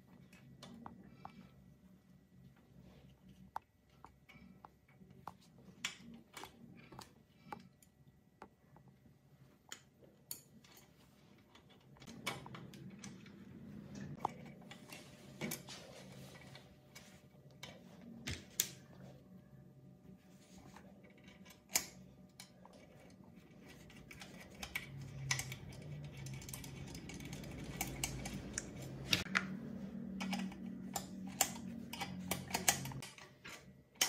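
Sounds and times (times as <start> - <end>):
small metal clicks and taps: 23.9 - 29.5.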